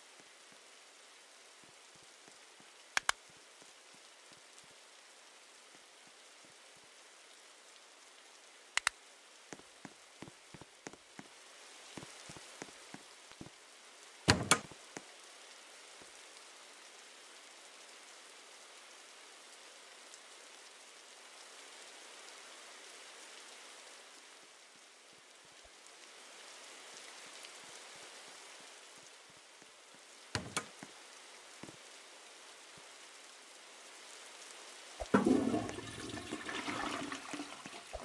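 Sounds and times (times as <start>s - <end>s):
soft steady hiss: 0.0s - 38.0s
light clicks and taps: 3.0s - 3.2s, 8.8s - 11.3s, 30.4s - 30.9s.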